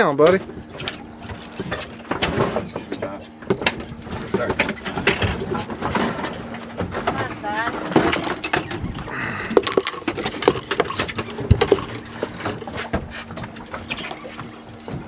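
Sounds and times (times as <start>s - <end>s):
steady low hum: 0.0s - 15.0s
fishing reel clicks and rattles: 8.0s - 12.8s, 13.4s - 14.9s.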